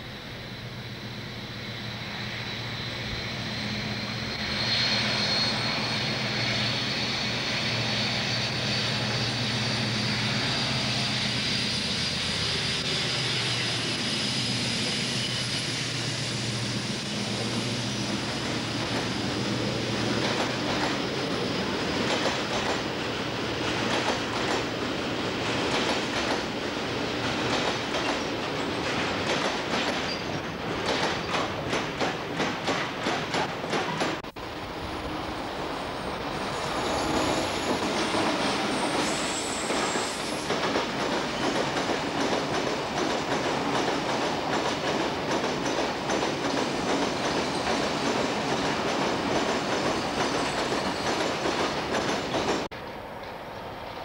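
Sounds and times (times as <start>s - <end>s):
locomotive engine drone: 0.0s - 25.7s, 34.2s - 41.0s
train wheels clattering over rail joints: 20.0s - 34.3s, 36.8s - 53.4s.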